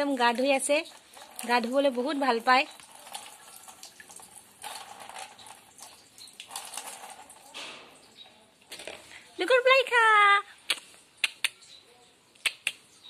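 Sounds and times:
water splashing: 0.0s - 8.2s.

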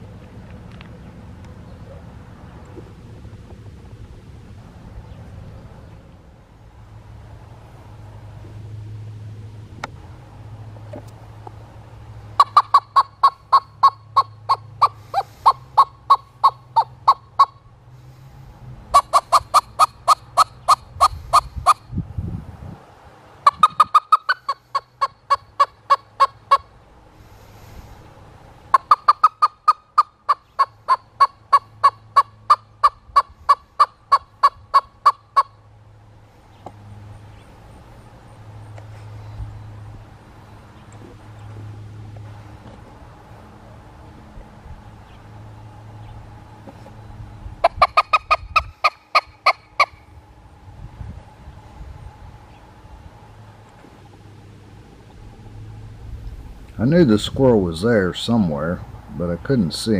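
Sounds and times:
squirrel call barks: 12.4s - 17.6s, 18.9s - 21.8s, 23.4s - 26.7s, 28.7s - 35.6s.

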